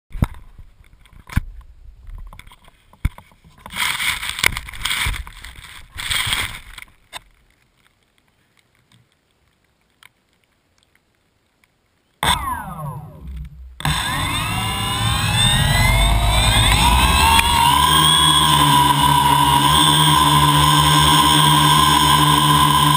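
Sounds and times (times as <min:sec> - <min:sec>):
drone propellers whining: 0:12.2 - 0:22.9.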